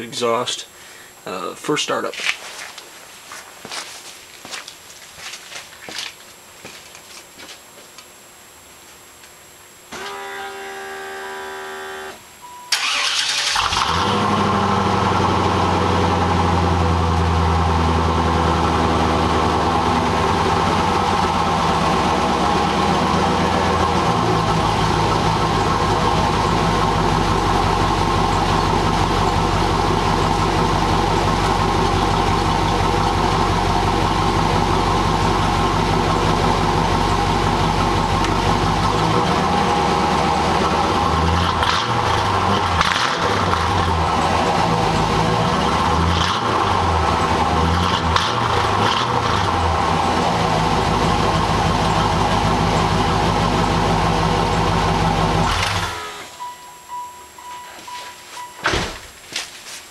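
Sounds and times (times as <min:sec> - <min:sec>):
starter motor whine: 0:09.9 - 0:16.8
car engine idling: 0:12.7 - 0:57.4.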